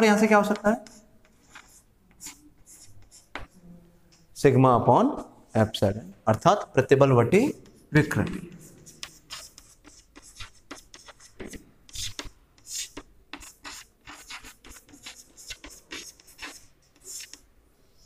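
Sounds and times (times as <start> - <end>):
chalk writing on chalkboard: 0.4 - 3.6, 7.4 - 17.5.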